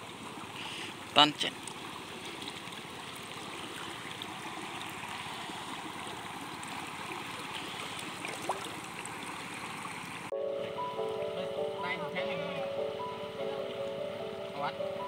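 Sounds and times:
water trickling and lapping: 0.0 - 10.3.

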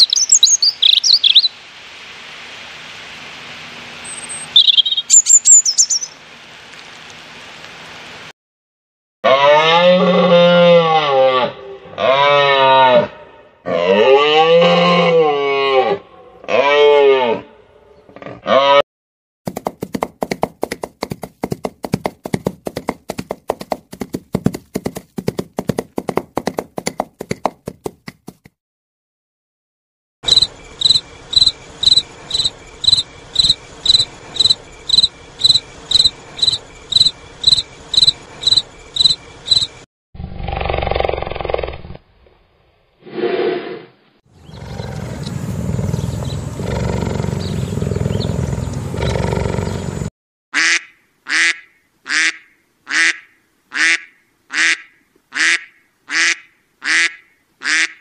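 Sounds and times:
hoofbeats of running horse: 19.5 - 28.5
cricket chirping: 30.2 - 39.8
low rough growl: 43.0 - 50.0
harsh animal calls: 43.1 - 50.0.

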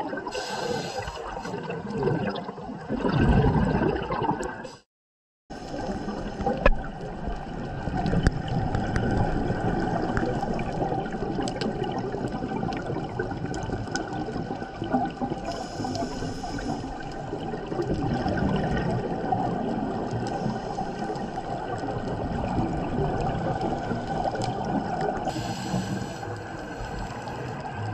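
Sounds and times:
bubbles gurgling: 0.0 - 4.8, 5.5 - 27.9
regulator breathing: 0.3 - 1.5, 25.3 - 27.7.

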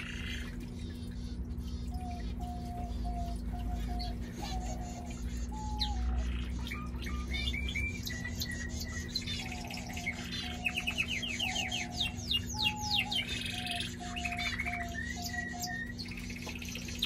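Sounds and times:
canary singing trills: 0.0 - 17.0.

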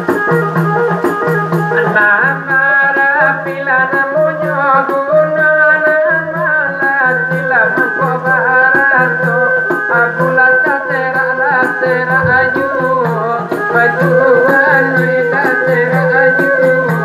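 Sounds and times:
bowed fiddle: 7.5 - 17.0
person singing wavering melody: 7.7 - 17.0
held drone tone: 11.8 - 16.2.

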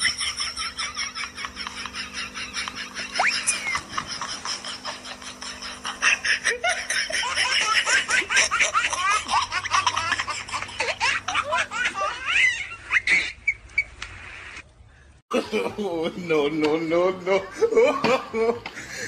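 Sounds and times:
high-pitched giggling: 0.0 - 13.6.

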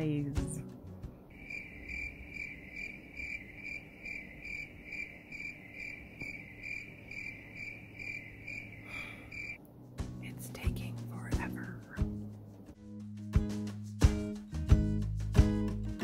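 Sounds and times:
cricket chirping: 1.3 - 9.6.

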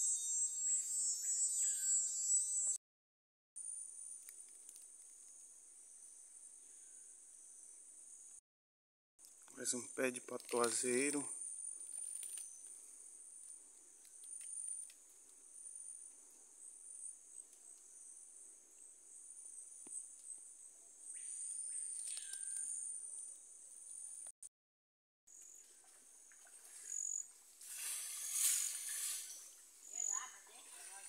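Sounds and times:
insect chorus shrilling: 0.0 - 2.7, 26.7 - 31.0.

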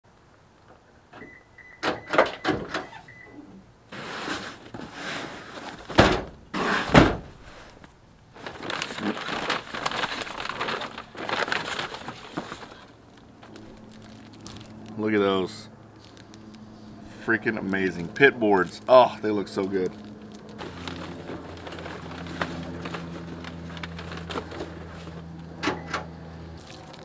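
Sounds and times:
cardboard box scraping: 3.9 - 5.9, 6.5 - 7.8
cardboard flaps rustling: 3.9 - 14.8, 19.6 - 25.3
tailgate heavy thunks: 5.9 - 7.4.

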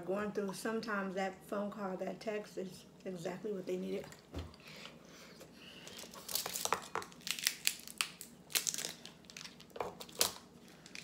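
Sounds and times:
crab shell cracking by hand: 6.3 - 11.0.

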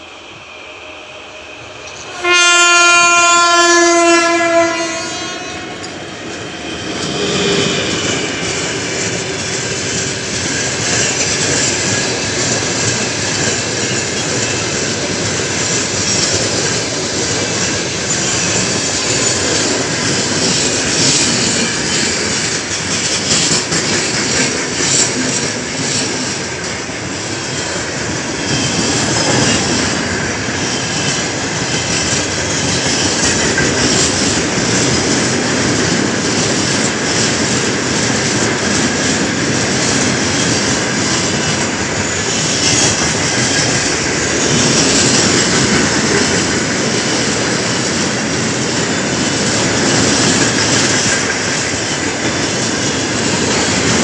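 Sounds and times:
locomotive horn blast: 2.0 - 5.9.

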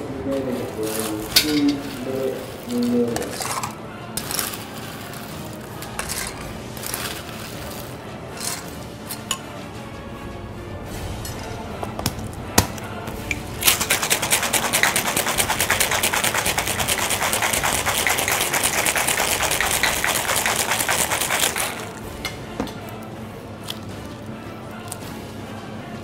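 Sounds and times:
ice rattling in cocktail shaker: 0.4 - 9.3, 13.6 - 22.0.

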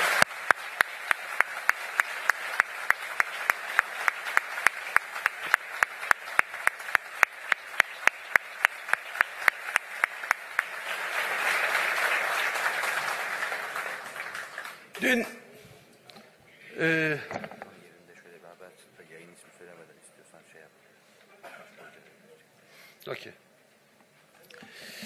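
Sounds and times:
man clapping near microphone: 0.0 - 14.8
audience applause: 0.0 - 15.3.

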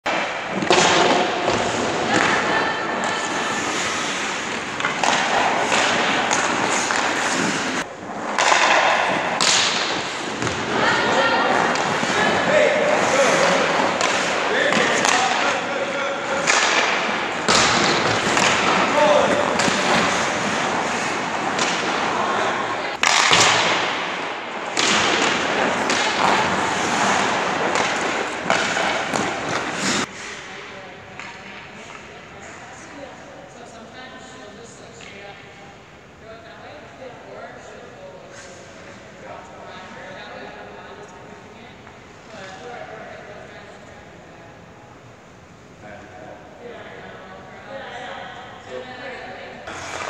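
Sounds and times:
puck and stick thuds on boards: 0.1 - 32.6, 49.7 - 50.0
skates scraping on ice: 0.1 - 32.8, 49.7 - 50.0
skate stop ice spray: 3.1 - 10.5, 24.8 - 30.4.

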